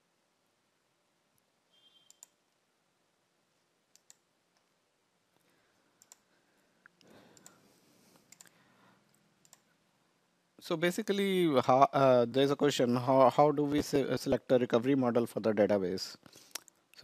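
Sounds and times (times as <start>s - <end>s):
computer mouse clicks: 2.0s - 2.6s, 3.9s - 4.7s, 6.0s - 9.7s.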